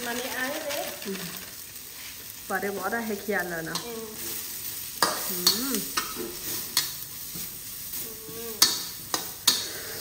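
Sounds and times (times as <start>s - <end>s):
vegetables sizzling in oil: 0.0s - 10.0s
metal spatula scraping a wok: 3.7s - 10.0s.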